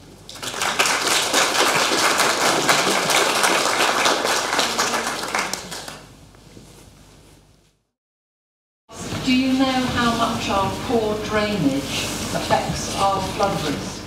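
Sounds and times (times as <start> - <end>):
audience applauding: 0.3 - 6.1.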